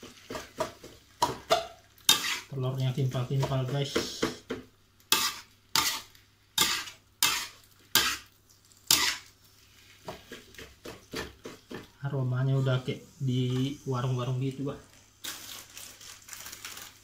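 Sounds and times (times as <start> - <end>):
metal spatula scraping wok: 2.1 - 2.5, 5.1 - 8.3, 8.9 - 9.3.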